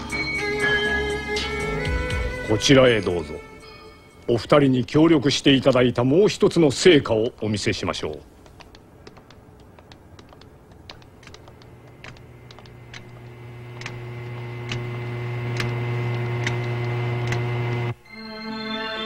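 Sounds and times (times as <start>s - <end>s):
footsteps on hard floor: 8.4s - 15.0s
low hum: 11.3s - 18.0s.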